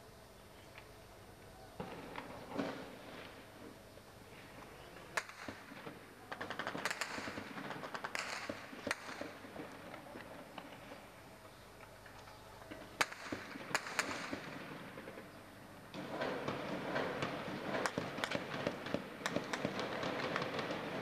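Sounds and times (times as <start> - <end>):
steady background hiss: 0.0 - 21.0
distant gunshots: 5.2 - 11.0, 13.0 - 21.0.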